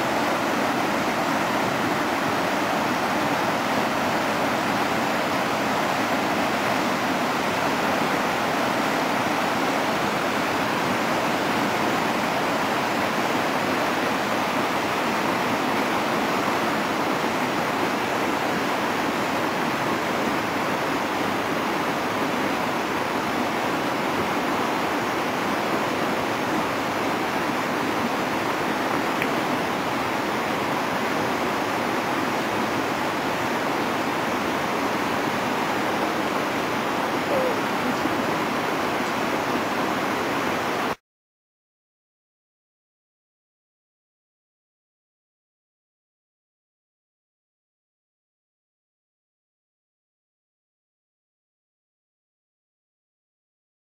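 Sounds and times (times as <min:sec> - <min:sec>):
river water rushing over stones: 0:00.0 - 0:41.0.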